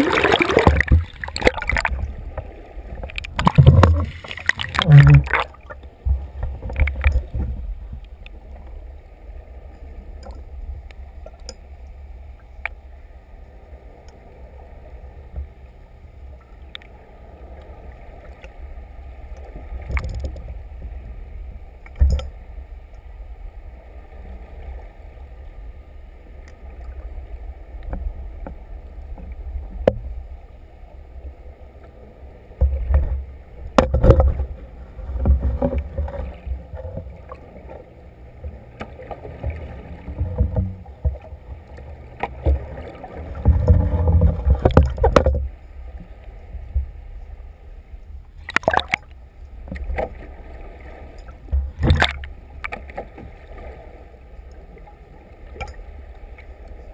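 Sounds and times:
sharp knocks underwater: 0.0 - 8.0, 32.6 - 37.4, 38.8 - 41.3, 42.2 - 45.6, 48.4 - 50.2, 51.4 - 53.1
underwater rumble: 0.0 - 56.9.

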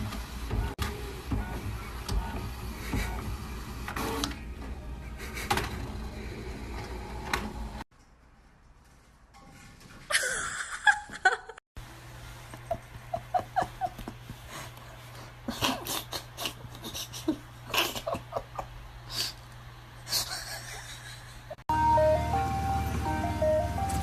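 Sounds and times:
breathy laughter: 15.5 - 19.2, 20.1 - 21.6.

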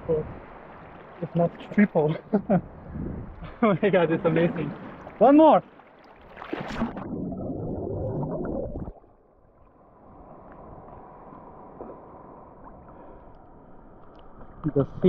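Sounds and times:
sea water washing: 0.0 - 15.0
splash into water: 4.7 - 9.1
muffled underwater bubbling: 6.6 - 9.2.

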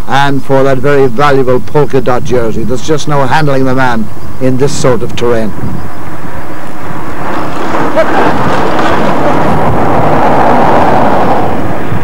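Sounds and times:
vehicle engine and road noise: 0.0 - 12.0
wind on microphone: 4.0 - 12.0.

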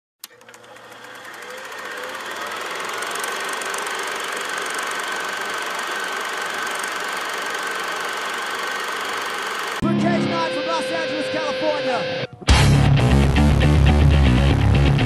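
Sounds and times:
film projector clattering: 0.2 - 9.8
high whine: 1.1 - 12.7.

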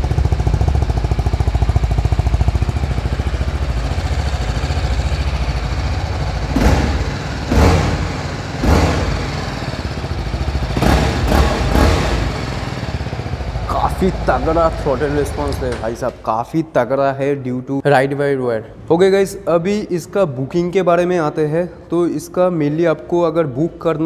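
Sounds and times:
motorcycle engine idling: 0.0 - 16.3
engine revving in throttle blips: 4.4 - 16.1.

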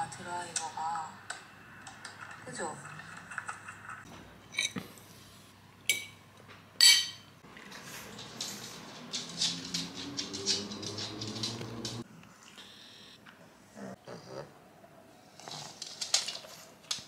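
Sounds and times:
fork clinking on ceramic plate: 6.8 - 7.3
dog claws tapping on wooden floor: 8.0 - 12.0.

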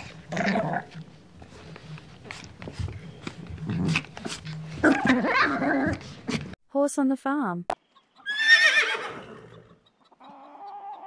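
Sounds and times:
small dog growling: 0.0 - 1.0, 4.8 - 6.1.

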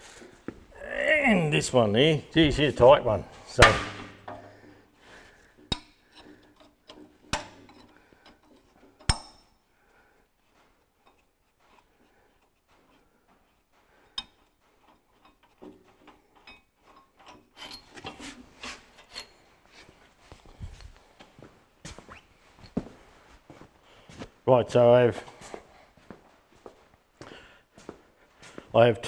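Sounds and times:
hand tools clicking on bolts: 5.6 - 9.6.

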